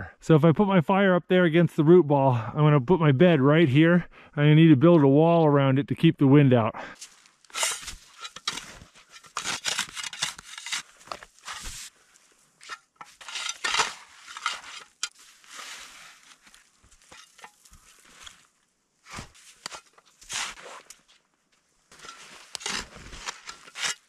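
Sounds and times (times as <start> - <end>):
shovel scraping snow: 7.0 - 12.0, 12.6 - 21.1, 21.9 - 24.0.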